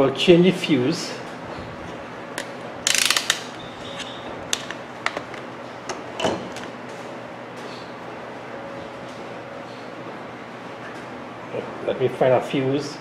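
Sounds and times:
low room hum: 0.0s - 13.0s
rattling clicks of handled tools: 2.4s - 5.2s.

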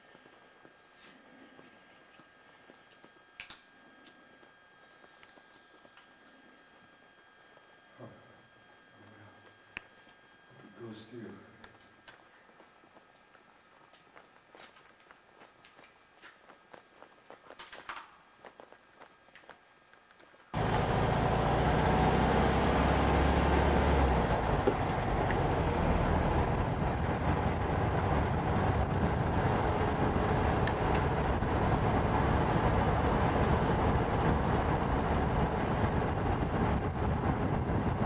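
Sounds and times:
car road and engine noise: 20.6s - 38.0s.

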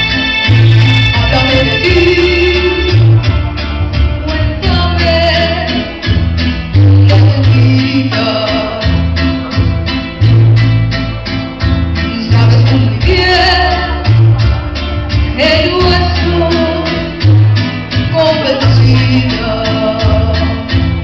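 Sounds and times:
latin-style backing music: 0.0s - 21.0s
woman singing into a microphone: 0.8s - 3.4s, 4.0s - 6.2s, 6.8s - 9.4s, 12.0s - 14.5s, 15.1s - 21.0s.

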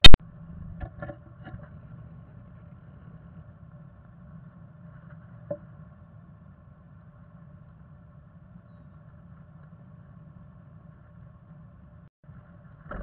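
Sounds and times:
sharp loud click: 0.0s - 0.2s.

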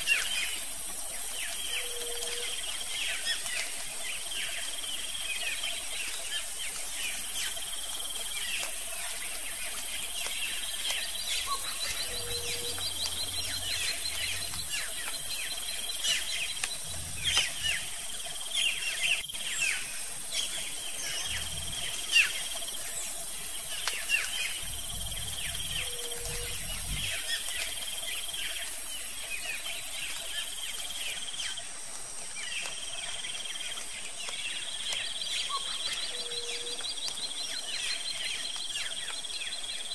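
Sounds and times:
high-pitched insect drone: 7.1s - 31.1s.

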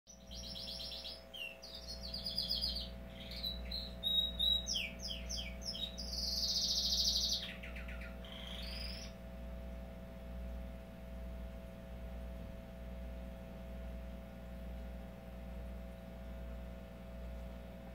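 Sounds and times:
canary singing trills: 0.1s - 9.3s
steady low hum: 0.1s - 17.9s.

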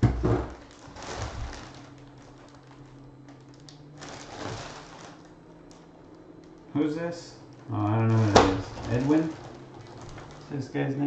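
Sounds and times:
plastic bag crinkling: 0.5s - 5.9s, 7.8s - 10.7s.

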